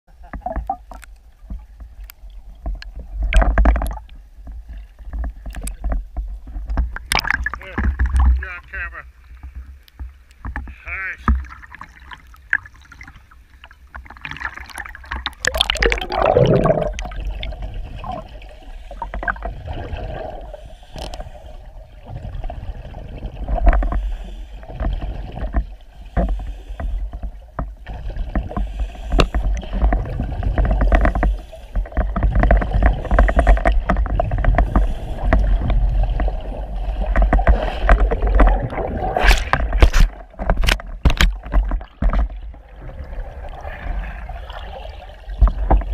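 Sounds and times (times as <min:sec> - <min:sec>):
underwater river rumble: 0:00.1 - 0:45.9
scuba exhale bubbles: 0:14.3 - 0:25.4, 0:27.8 - 0:40.3
knocks and clicks from current: 0:39.3 - 0:42.4.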